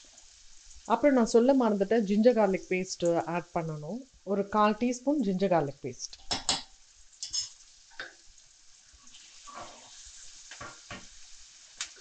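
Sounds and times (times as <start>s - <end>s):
onions sizzling in oil: 0.0s - 12.0s
spoon scraping and tapping pan: 6.2s - 8.2s, 9.1s - 11.2s.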